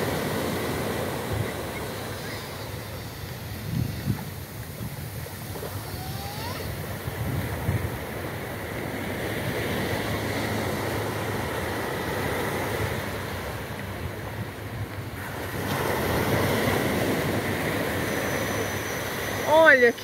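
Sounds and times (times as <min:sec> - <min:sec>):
surf breaking on beach: 0:00.0 - 0:20.0.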